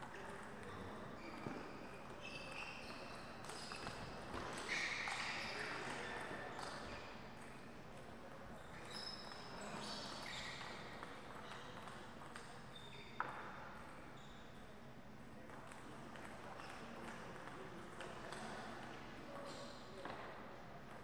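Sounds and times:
sports shoes squeaking on floor: 0:00.6 - 0:07.5, 0:08.6 - 0:14.5, 0:19.4 - 0:19.9.

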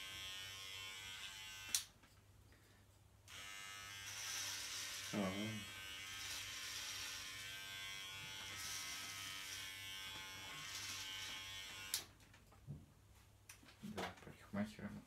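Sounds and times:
electric hair clippers buzzing: 0:00.0 - 0:01.9, 0:03.3 - 0:12.1.

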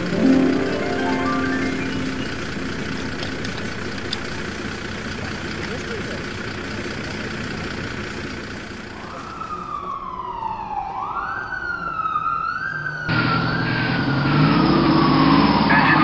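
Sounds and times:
fire engine siren wailing: 0:00.0 - 0:05.3, 0:08.8 - 0:16.0
vehicle rumble: 0:00.0 - 0:16.0.

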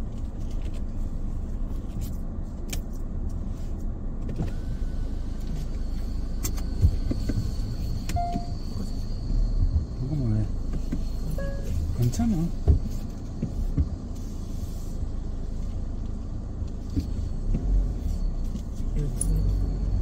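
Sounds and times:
engine and tyres rumbling: 0:00.0 - 0:20.0.

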